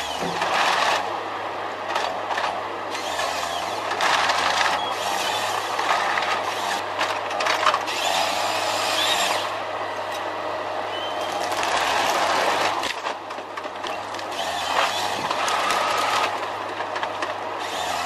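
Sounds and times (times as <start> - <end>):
hydraulic whine: 0.0 - 10.2, 13.8 - 16.5, 17.5 - 18.0
diesel engine running: 0.0 - 18.0
rushing crackling of tree trunk feeding: 11.0 - 17.8
branches snapping and saw cutting: 11.2 - 18.0.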